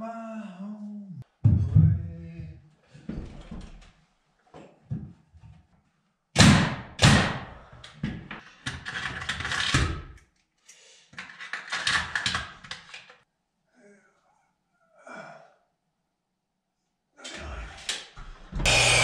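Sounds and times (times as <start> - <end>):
circular saw cutting wood: 18.6 - 19.0.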